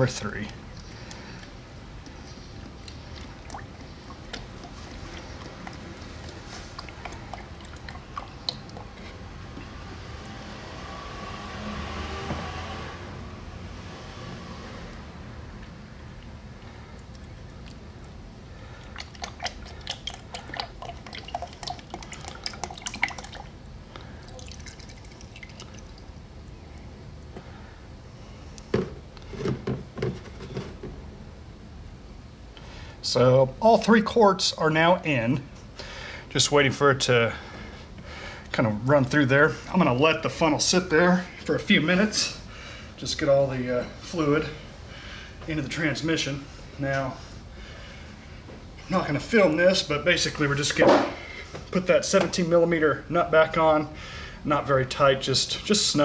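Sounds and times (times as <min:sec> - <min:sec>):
liquid dripping: 0:00.2 - 0:09.1, 0:16.2 - 0:27.3
liquid glugging into funnel: 0:02.6 - 0:09.1, 0:18.7 - 0:26.2
fluid pouring into plastic cup: 0:18.7 - 0:26.5.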